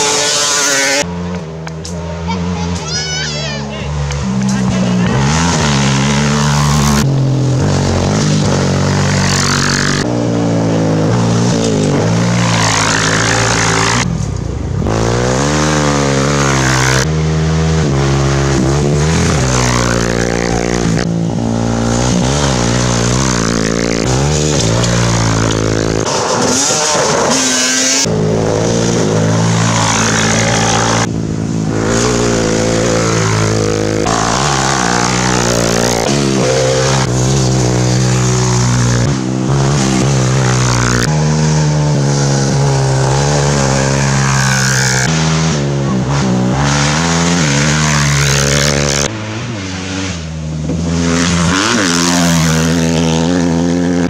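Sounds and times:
off-road motorcycles revving past: 0.0s - 54.0s.

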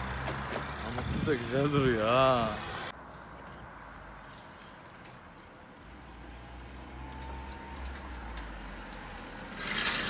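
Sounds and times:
car engine approaching: 0.0s - 3.0s.

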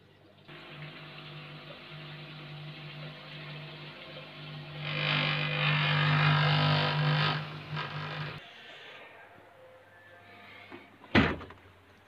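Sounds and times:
drain pump humming: 0.0s - 8.4s
water gushing from hose: 0.5s - 8.4s.

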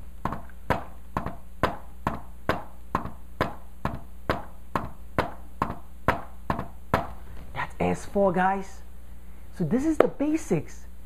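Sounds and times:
hand knocking on whiteboard: 0.2s - 7.2s.

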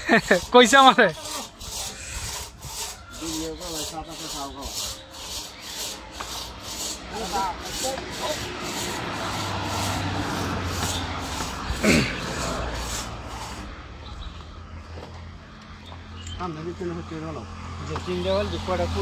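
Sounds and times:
wood rasping: 0.0s - 14.0s.

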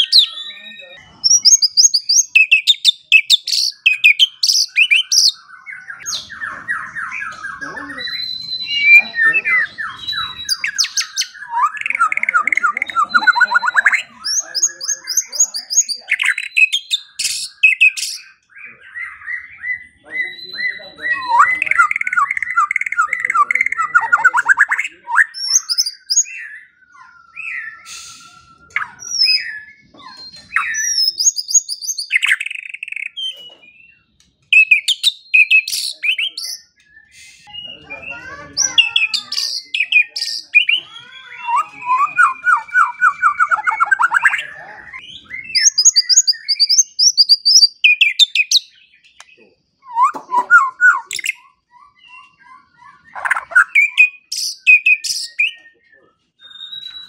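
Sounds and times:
bird singing whistles and trills: 0.0s - 57.0s.

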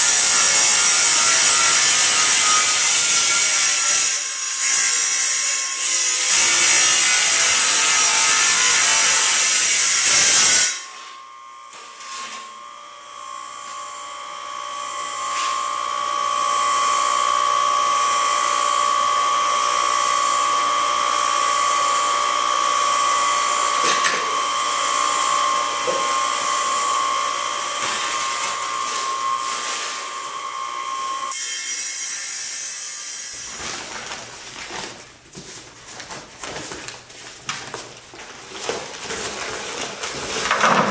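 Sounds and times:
tile saw grinding through tile: 0.0s - 12.7s, 14.9s - 17.1s, 20.2s - 35.0s, 38.5s - 40.9s
saw motor whining: 21.5s - 33.4s.

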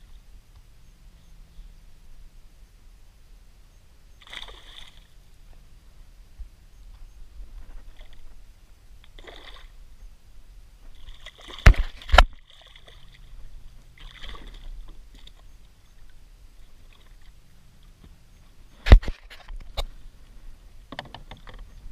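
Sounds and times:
small fish splashing into water: 4.2s - 5.1s.

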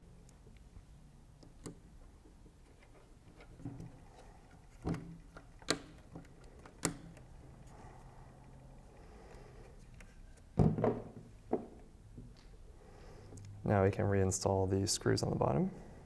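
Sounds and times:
screwdriver clicks and taps: 4.8s - 7.3s.

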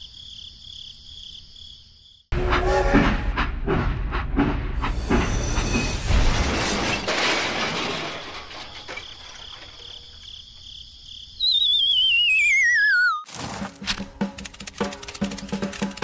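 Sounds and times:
toy train crashing: 5.2s - 10.3s.

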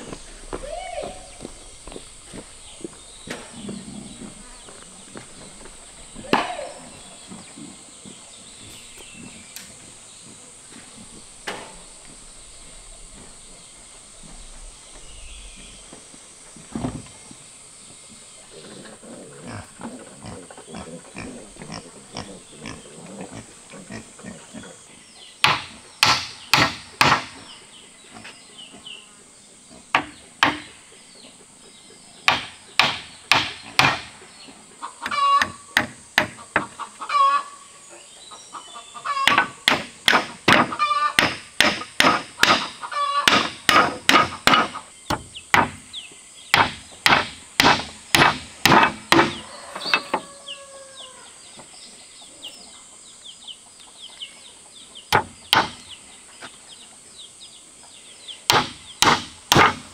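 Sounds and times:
hammer driving nails into wood: 32.3s - 34.1s, 43.3s - 45.8s, 46.5s - 49.4s, 58.5s - 59.9s.

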